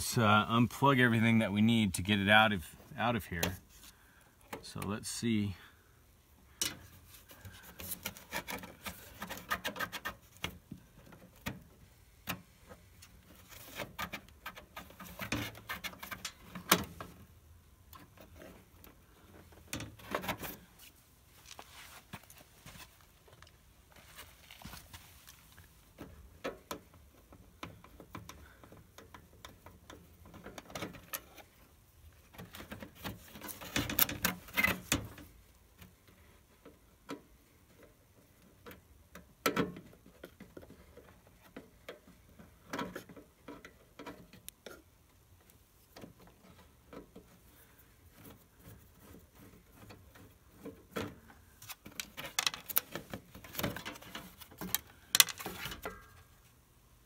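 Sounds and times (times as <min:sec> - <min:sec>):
metal parts rattling: 0:51.9 - 0:56.2.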